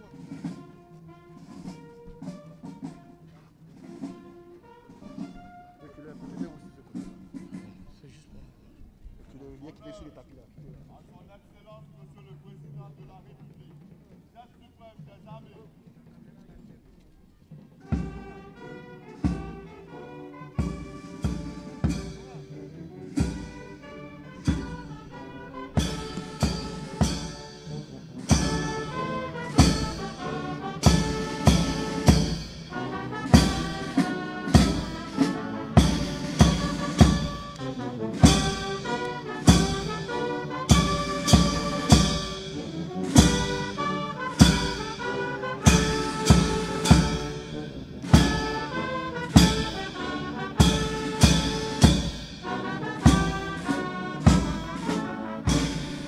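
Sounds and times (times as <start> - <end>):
military brass band playing: 0.0 - 7.8, 17.7 - 56.0
steady drum beat: 17.9 - 56.0.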